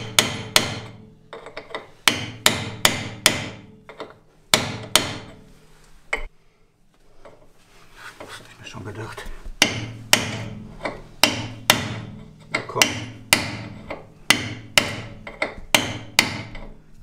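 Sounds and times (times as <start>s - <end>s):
hammer striking steel: 0.0s - 5.4s, 9.6s - 16.8s.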